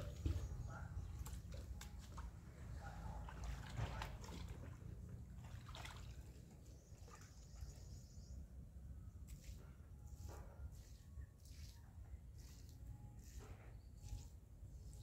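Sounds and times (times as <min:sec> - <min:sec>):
water sloshing and splashing: 0:00.0 - 0:08.1.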